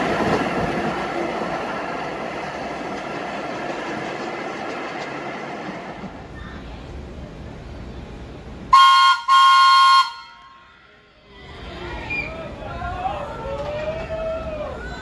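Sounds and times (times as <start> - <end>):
subway train on rails: 0.0 - 15.0
train horn blasts: 8.7 - 10.5.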